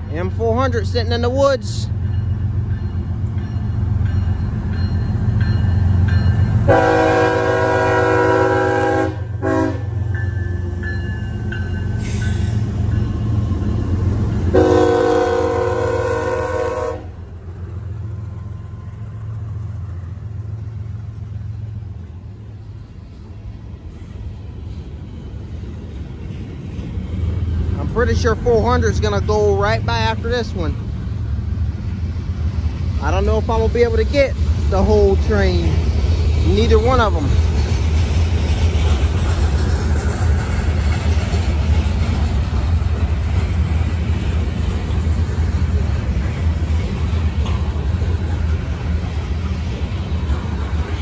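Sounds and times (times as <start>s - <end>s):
boxcars rolling past: 0.0s - 51.0s
diesel locomotive engines rumbling: 0.0s - 51.0s
train air horn: 6.7s - 10.0s, 14.5s - 17.2s.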